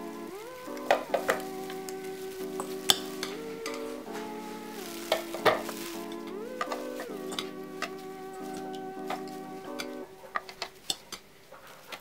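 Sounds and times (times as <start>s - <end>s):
background music of held notes: 0.0s - 11.4s
spoon clinking against glass bowl: 2.6s - 3.9s.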